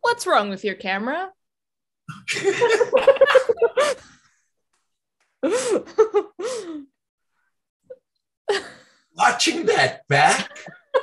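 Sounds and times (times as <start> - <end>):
people laughing: 2.3 - 4.0.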